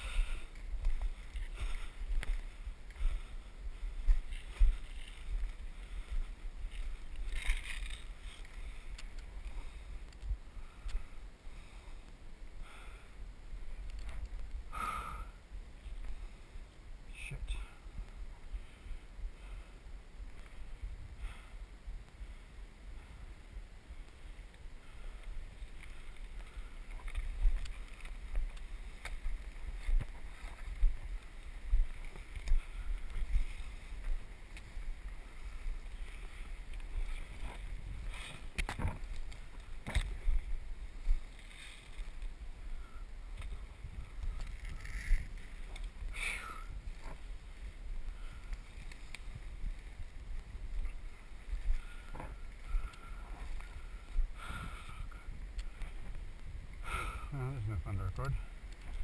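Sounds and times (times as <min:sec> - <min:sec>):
plants swishing against legs: 0:25.7 - 0:42.4
twigs snapping: 0:36.7 - 0:40.4.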